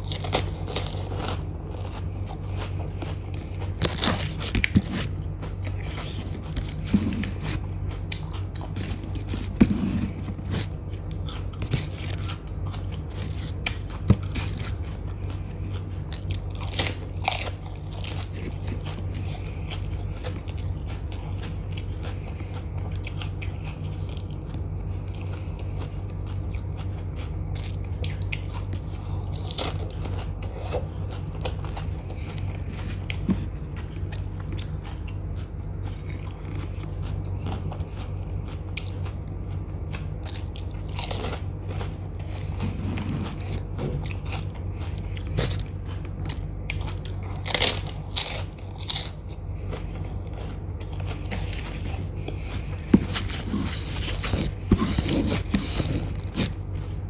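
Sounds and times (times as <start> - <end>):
crisp shells crunching: 0.0 - 15.0, 15.7 - 21.1, 40.3 - 57.0
chewing: 0.0 - 57.0
steady low hum: 0.0 - 57.0.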